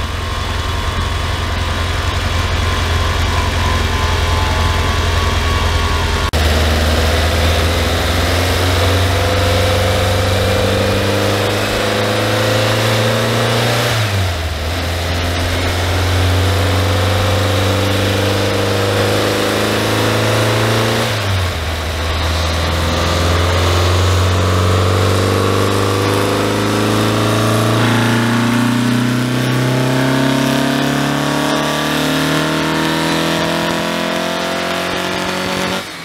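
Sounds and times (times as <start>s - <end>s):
car engine running under load: 0.0s - 36.0s.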